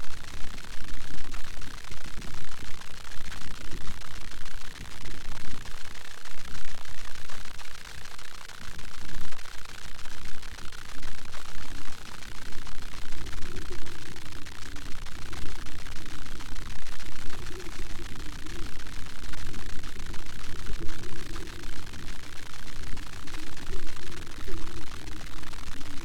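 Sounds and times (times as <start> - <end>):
steady hiss: 10.1 - 26.0.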